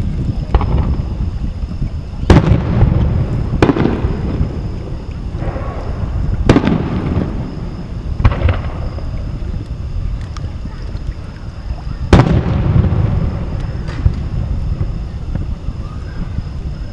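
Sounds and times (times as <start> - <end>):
steady low rumble: 0.0 - 16.9
fireworks bangs with echo: 2.3 - 4.7, 5.4 - 9.0, 12.1 - 14.9.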